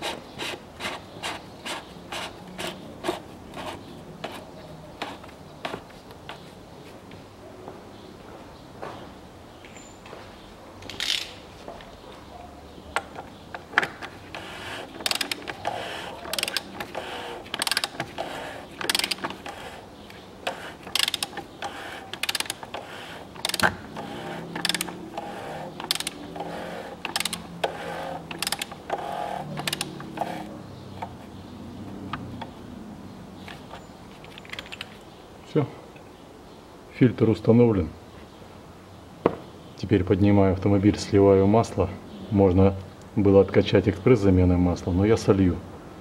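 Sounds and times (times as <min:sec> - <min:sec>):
ratchet wrench clicking: 0:14.3 - 0:19.6, 0:20.4 - 0:30.4.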